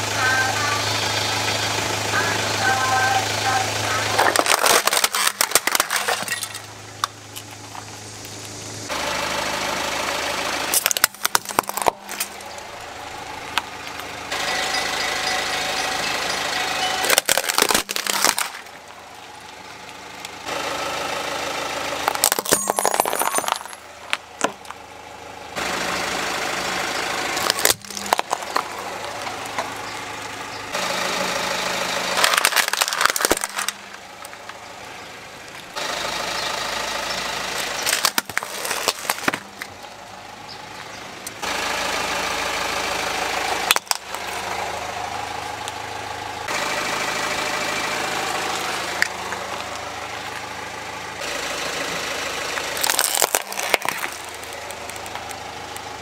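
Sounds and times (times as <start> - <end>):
car engine running: 0.0 - 56.0
plastic toys crunching under tyre: 3.9 - 8.5, 10.7 - 12.8, 16.8 - 20.0, 22.0 - 24.8, 27.3 - 30.2, 32.0 - 34.6, 37.4 - 39.8, 43.6 - 44.6, 52.5 - 56.0.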